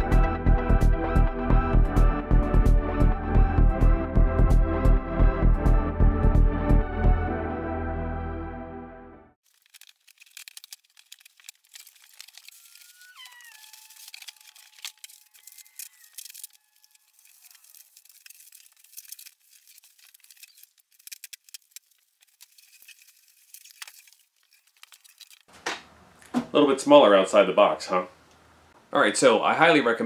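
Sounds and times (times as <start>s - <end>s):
packing material rustling and tearing: 9.4s - 25.7s
foam squeaking: 9.9s - 25.6s.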